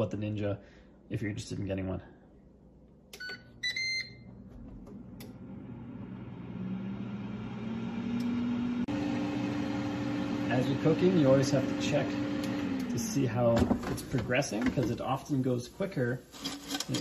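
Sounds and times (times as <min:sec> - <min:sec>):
control panel beeps: 0:03.2 - 0:04.3
air fryer fan whirring: 0:04.8 - 0:15.5.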